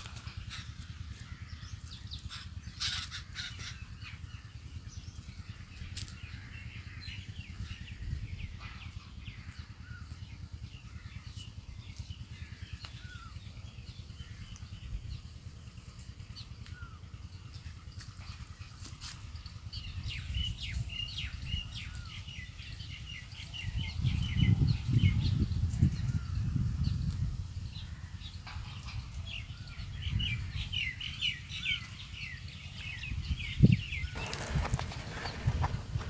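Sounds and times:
birds calling: 0.0s - 36.0s
crows cawing: 2.3s - 3.8s.

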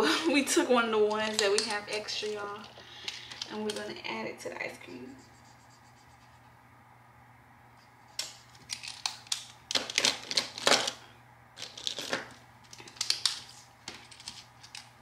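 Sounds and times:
markers scribbling on paper: 4.9s - 6.4s.

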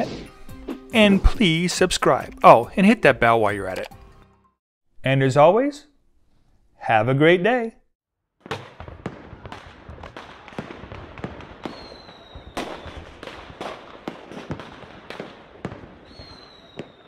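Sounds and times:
high falling whistle: 11.7s - 13.0s, 16.0s - 17.0s.

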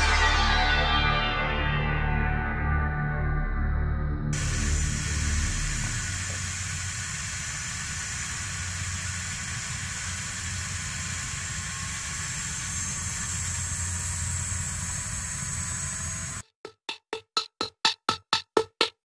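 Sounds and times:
helicopter turbine running: 4.4s - 16.4s.

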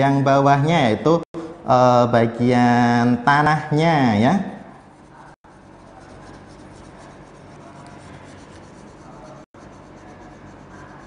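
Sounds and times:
crayon scratching on paper: 4.8s - 11.0s.

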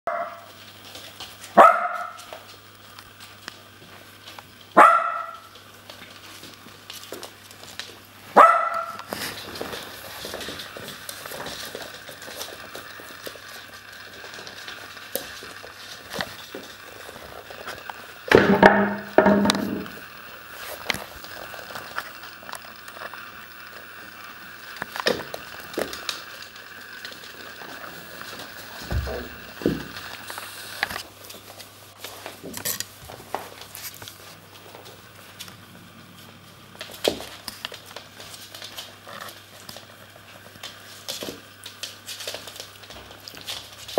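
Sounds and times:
puppies barking: 0.1s - 0.4s, 1.6s - 2.3s, 4.8s - 5.5s, 8.4s - 9.1s.

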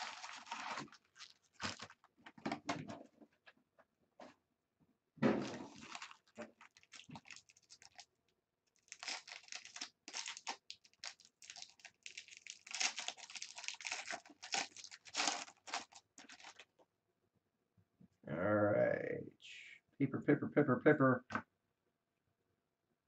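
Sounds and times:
foil wrapper crinkling and tearing: 0.0s - 2.4s, 5.4s - 16.7s.

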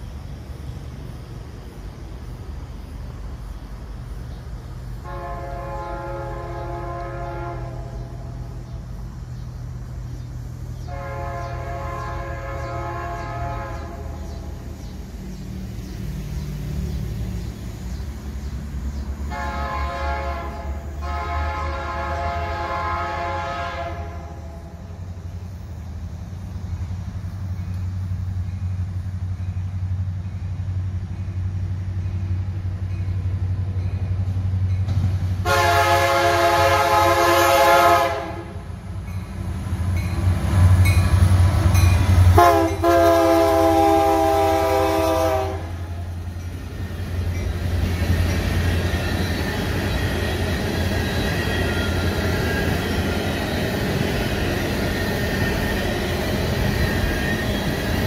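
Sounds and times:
diesel locomotives rumbling: 0.0s - 58.0s
train wheels on rails: 0.0s - 58.0s
train air horn blasts: 5.0s - 8.6s, 10.8s - 14.6s, 19.3s - 24.9s, 35.4s - 38.7s, 42.2s - 46.0s.

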